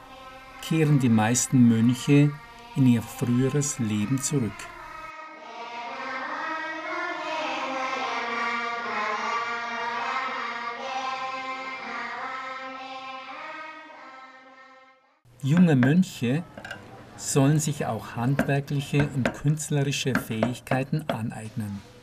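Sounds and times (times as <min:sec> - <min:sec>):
monks chanting: 0:15.6 - 0:21.2.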